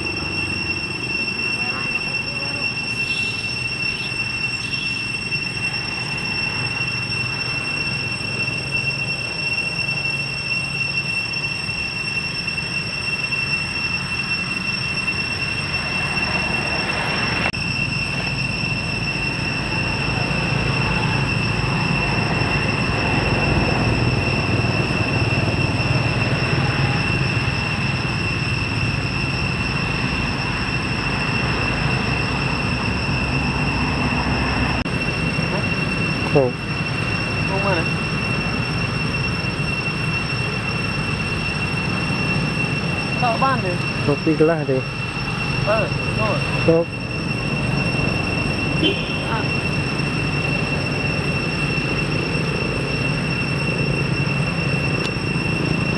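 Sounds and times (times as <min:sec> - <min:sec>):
high-pitched whine: 0:00.0 - 0:55.9.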